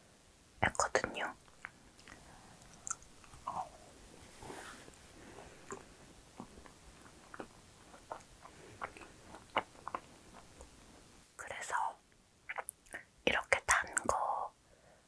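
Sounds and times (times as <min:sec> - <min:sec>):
chewing with mouth clicks: 0:01.4 - 0:03.8, 0:05.4 - 0:10.8.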